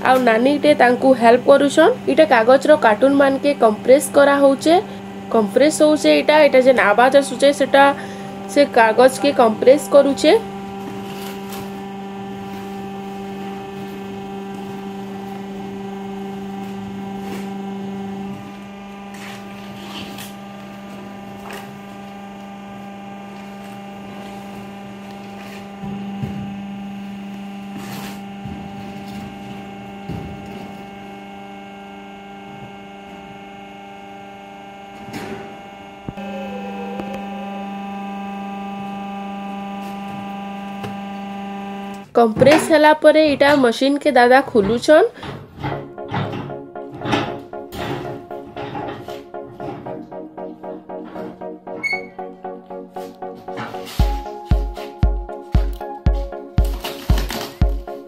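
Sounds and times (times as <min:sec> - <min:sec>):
baler motor and pump humming: 0:00.0 - 0:43.8, 0:44.4 - 0:51.7, 0:52.3 - 0:58.0.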